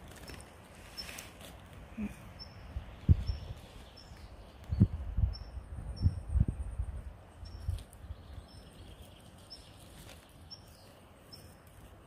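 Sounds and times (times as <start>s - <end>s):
small bird calling: 1.9s - 6.8s.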